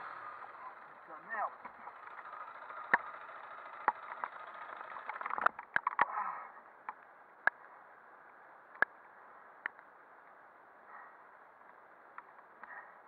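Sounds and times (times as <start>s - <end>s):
clicks and knocks of motorcycle: 1.6s - 6.1s.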